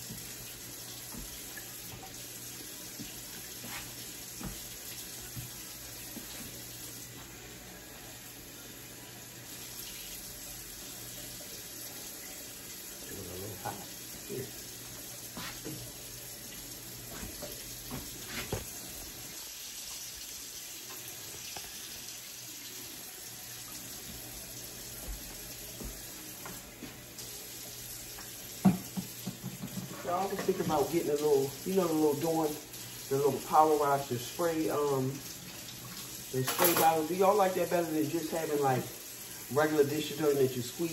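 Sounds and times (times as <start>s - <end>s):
faucet running into sink: 0.0s - 7.2s, 8.0s - 40.9s
dishes clinking and knocking: 28.6s - 30.6s, 36.5s - 37.0s.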